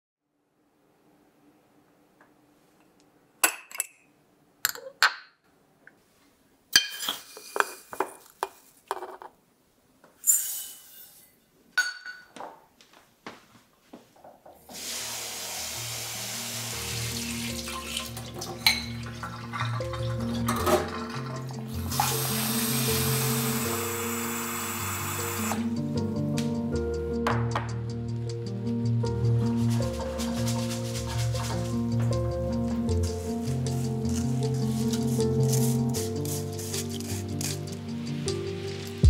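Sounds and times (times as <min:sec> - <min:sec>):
glass jar and metal cup clinking: 0:11.8 - 0:12.3, 0:17.9 - 0:21.4
kitchen faucet running: 0:14.7 - 0:25.6.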